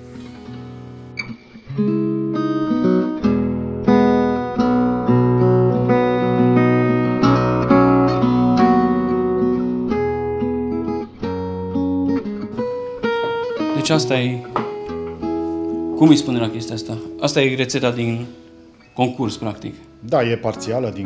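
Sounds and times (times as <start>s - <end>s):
acoustic guitar chords: 0.0s - 21.0s.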